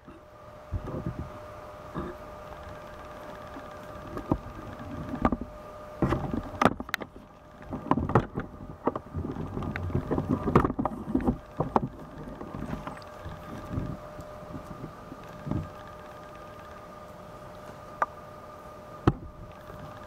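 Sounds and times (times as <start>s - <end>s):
faint high hum: 0.0s - 20.0s.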